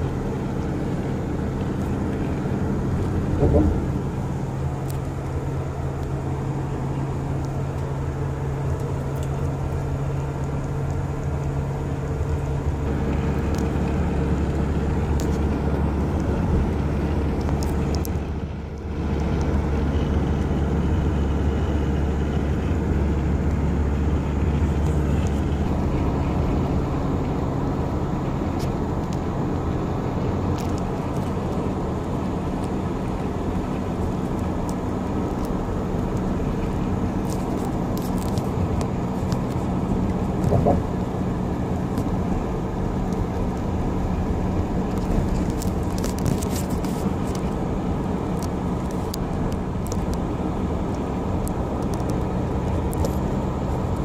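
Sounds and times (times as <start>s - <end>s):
car engine and tyre drone: 0.0s - 54.0s.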